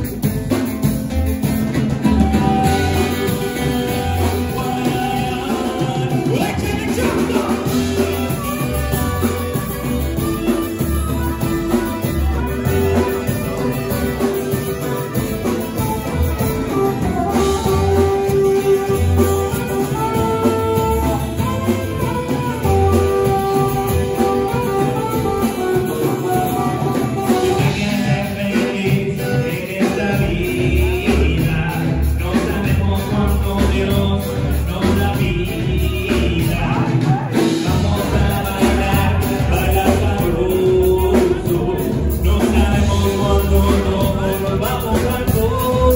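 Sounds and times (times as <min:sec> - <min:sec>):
acoustic guitar: 0:00.0 - 0:45.9
drums with steady beat: 0:00.0 - 0:45.9
person singing: 0:01.8 - 0:45.9
saxophone holding long notes: 0:02.0 - 0:06.2, 0:07.6 - 0:27.9.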